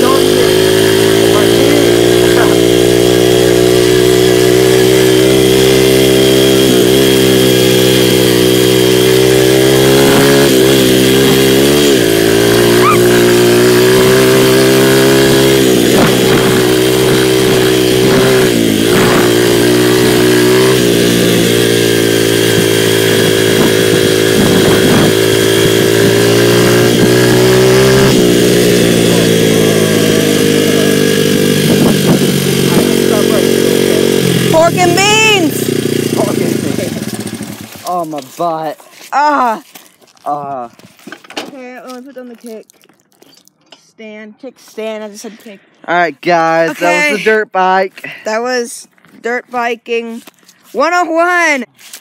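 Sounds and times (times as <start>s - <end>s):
dirt bike engine revving: 0.0s - 39.5s, 45.9s - 47.4s.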